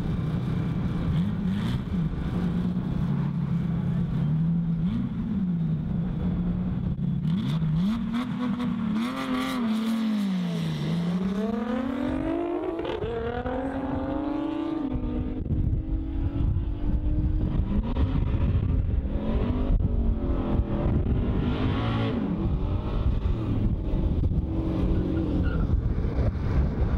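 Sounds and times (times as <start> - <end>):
car engines accelerating hard: 0.0 - 26.9
heavy low rumble: 14.9 - 21.5.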